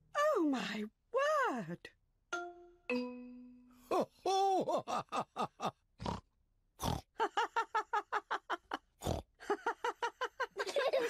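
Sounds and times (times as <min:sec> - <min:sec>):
pig snorts: 0:06.0 - 0:06.2, 0:06.8 - 0:07.0, 0:09.0 - 0:09.3.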